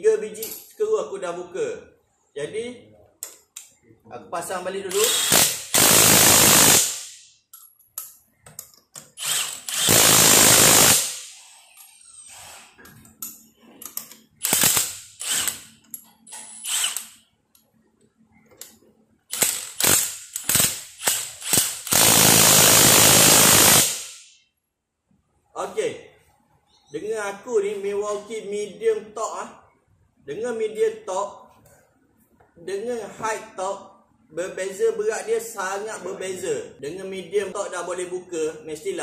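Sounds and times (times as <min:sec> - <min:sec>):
impact wrench hammering: 0:04.9 - 0:07.2, 0:14.4 - 0:15.7, 0:19.3 - 0:24.2
impact wrench trigger pulls: 0:14.4 - 0:15.7, 0:19.3 - 0:22.1.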